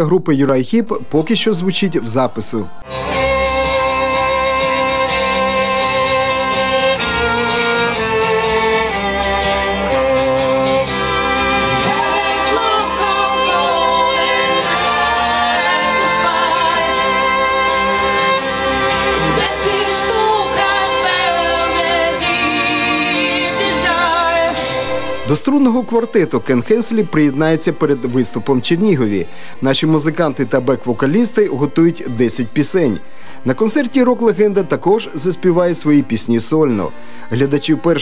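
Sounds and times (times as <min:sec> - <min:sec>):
person singing: 0:01.6 - 0:25.9
string quartet playing: 0:02.8 - 0:29.2.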